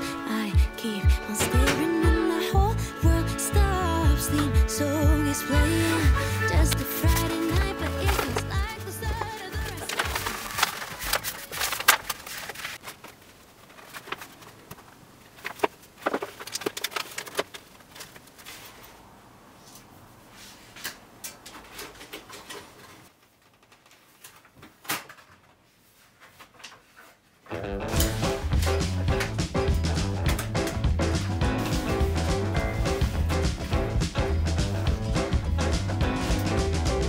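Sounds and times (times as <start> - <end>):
plastic film crinkling: 5.8 - 18.8.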